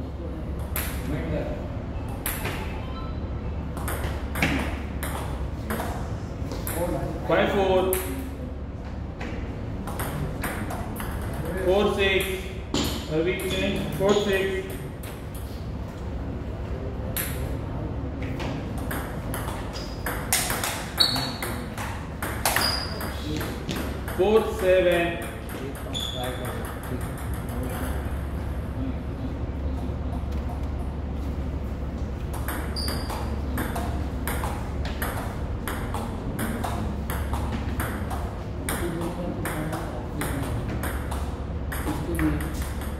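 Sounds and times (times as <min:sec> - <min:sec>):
steady low hum: 0:00.0 - 0:42.9
brief high squeak: 0:21.0 - 0:21.4, 0:25.9 - 0:26.4.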